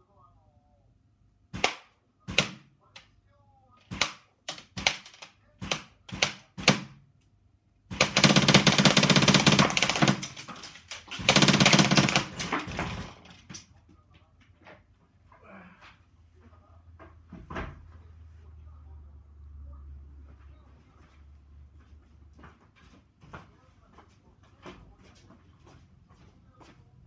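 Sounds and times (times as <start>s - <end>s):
airsoft rifle shots: 1.5s - 2.7s, 3.9s - 7.0s, 7.9s - 13.1s
full-auto bursts: 7.9s - 13.1s.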